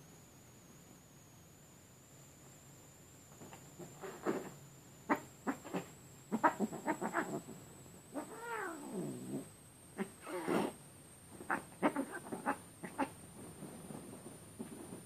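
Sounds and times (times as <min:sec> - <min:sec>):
cats crying: 0:05.5 - 0:07.5, 0:08.1 - 0:09.2, 0:11.4 - 0:13.1.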